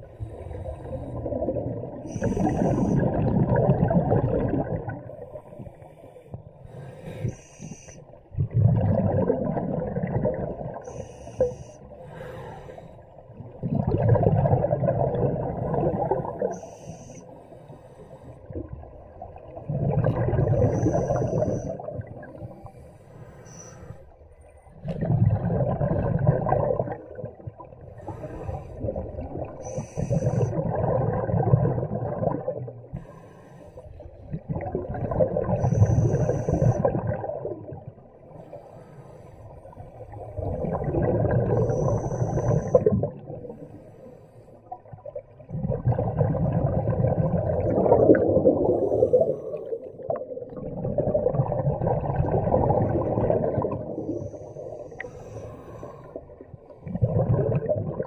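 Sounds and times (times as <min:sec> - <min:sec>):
scuba diver breathing: 0:00.0 - 0:03.3, 0:05.1 - 0:08.2, 0:10.7 - 0:13.3, 0:15.4 - 0:18.7, 0:20.3 - 0:24.2, 0:27.9 - 0:30.8, 0:32.9 - 0:34.2, 0:35.4 - 0:37.0, 0:38.3 - 0:44.9, 0:47.8 - 0:50.6, 0:53.5 - 0:57.0
bubbles gurgling underwater: 0:00.6 - 0:05.3, 0:08.3 - 0:10.9, 0:13.4 - 0:16.6, 0:18.4 - 0:22.7, 0:24.7 - 0:33.1, 0:34.2 - 0:38.2, 0:39.9 - 0:43.7, 0:44.8 - 0:55.1, 0:55.8 - 0:58.0.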